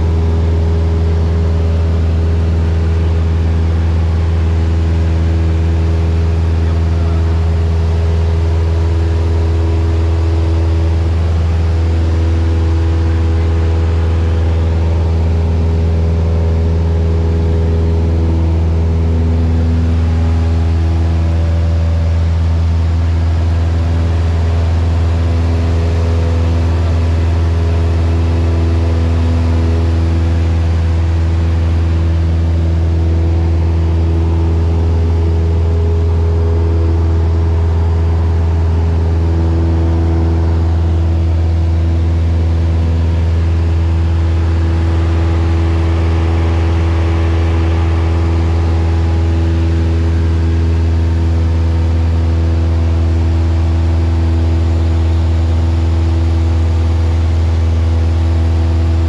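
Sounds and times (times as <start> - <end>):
airplane engine droning: 0.0 - 59.0.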